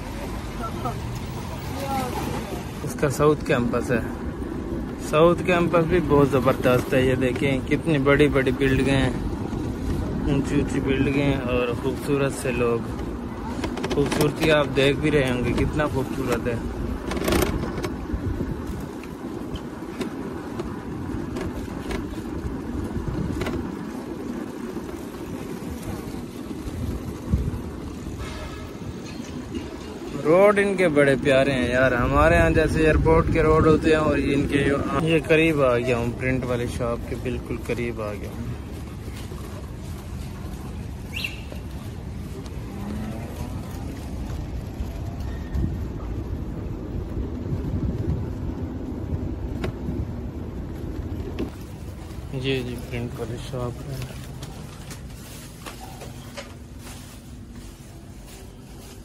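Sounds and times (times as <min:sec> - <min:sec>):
scooter road noise: 0:00.0 - 0:59.0
wind on microphone: 0:16.6 - 0:29.9, 0:38.4 - 0:52.9.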